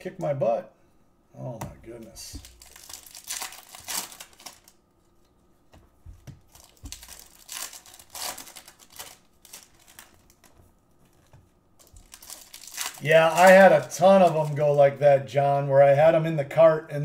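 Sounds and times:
foil wrappers crinkling and tearing: 2.3 - 5.3, 6.5 - 15.0.

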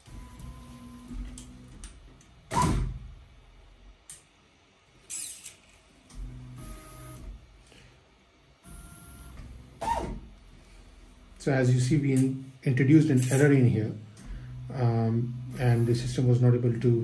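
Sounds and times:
stepper motors whining: 14.5 - 16.4.

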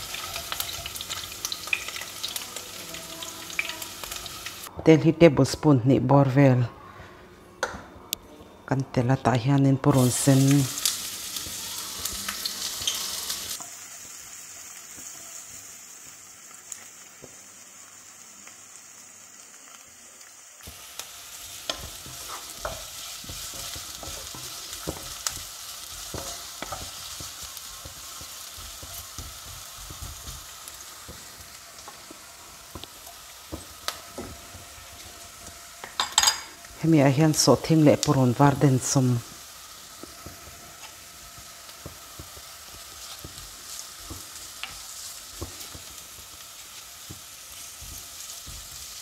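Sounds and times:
onion sizzling in hot oil: 0.0 - 4.7, 9.8 - 49.0
spatula scraping a pan: 21.7 - 27.1.

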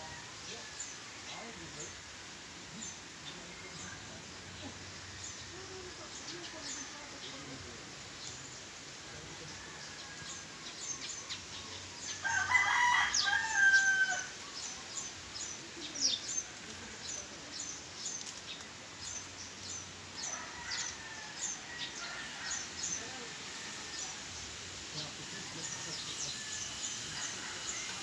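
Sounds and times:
small birds chirping: 0.7 - 28.0
rooster crowing: 12.2 - 14.4, 20.3 - 22.9, 26.4 - 28.0.

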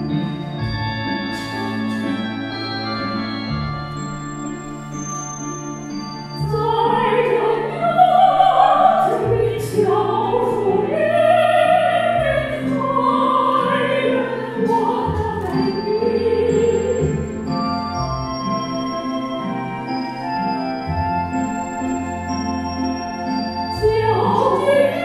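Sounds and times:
sustained accompaniment chords: 0.0 - 25.0
women singing a duet: 6.4 - 17.4, 23.8 - 25.0.

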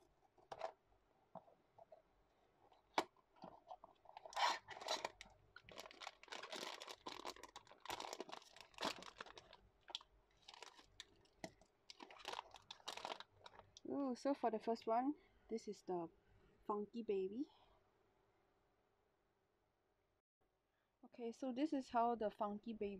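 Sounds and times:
foil bag tearing and crinkling: 4.2 - 11.1, 11.9 - 13.6.

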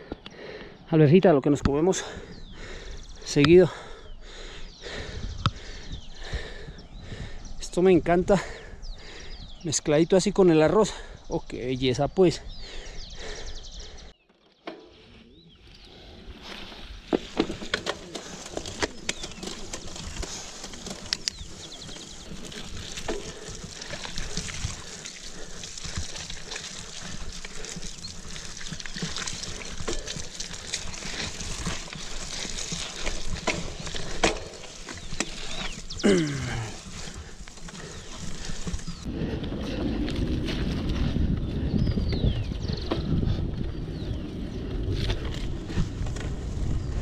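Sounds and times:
bike tyres on dirt: 14.9 - 47.0
bike rattling over bumps: 16.3 - 47.0.

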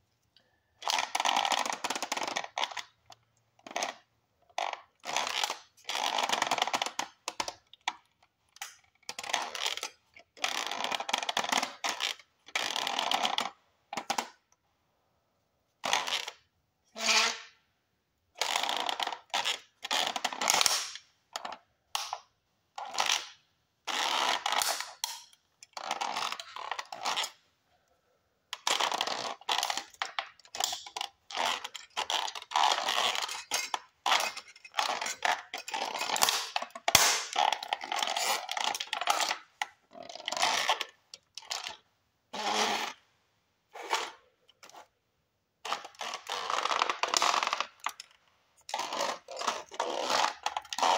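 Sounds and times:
plastic toy car crunching underfoot: 28.6 - 41.8.

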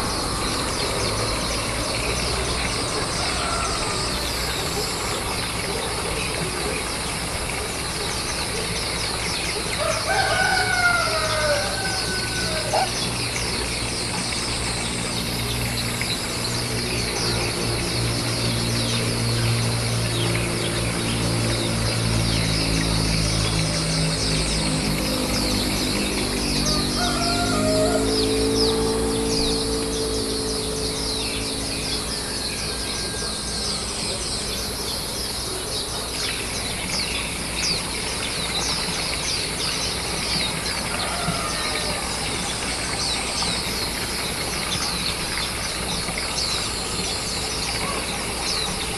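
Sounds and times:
rooster crowing: 3.1 - 4.3, 9.8 - 13.1, 26.6 - 29.2, 32.0 - 33.8, 40.8 - 42.3.

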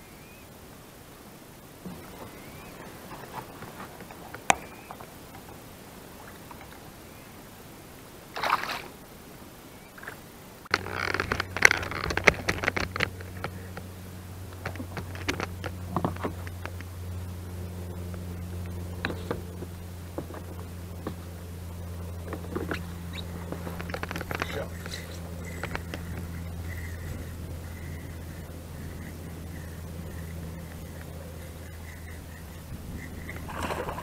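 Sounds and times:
steady low hum: 0.0 - 34.0
fishing gear clicks and scrapes: 10.7 - 13.8, 23.6 - 33.6
fish splashing into water: 33.3 - 34.0.

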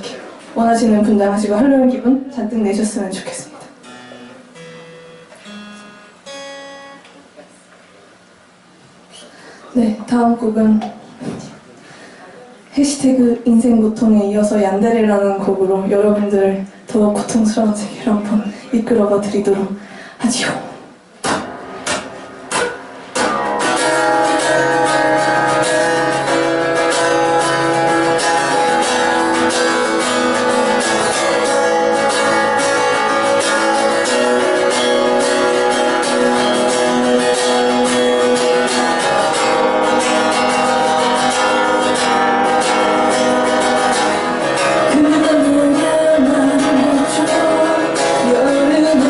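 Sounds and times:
acoustic guitar strumming: 3.8 - 7.2, 21.2 - 49.0.

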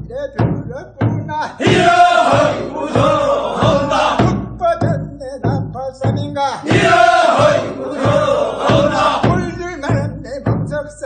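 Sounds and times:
voices singing a work song: 1.5 - 4.5, 6.6 - 10.0.

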